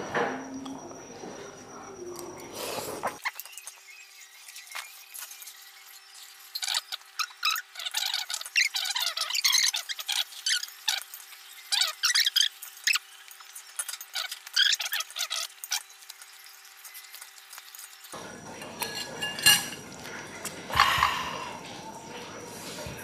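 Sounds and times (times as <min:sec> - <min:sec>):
cutlery clinking on ceramic bowls: 0:18.5 - 0:20.1.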